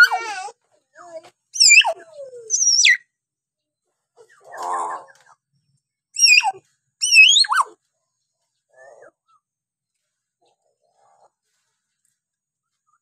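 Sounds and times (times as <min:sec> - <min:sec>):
myna bird whistled calls: 0:01.6 - 0:03.0, 0:06.2 - 0:07.6.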